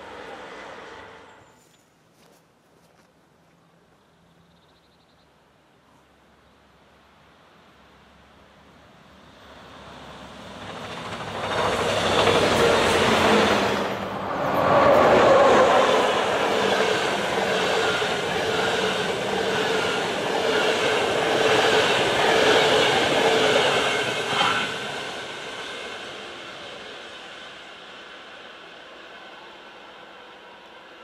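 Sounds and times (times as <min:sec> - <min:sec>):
train wheels rushing on rail: 0:00.0 - 0:01.4, 0:09.1 - 0:31.0.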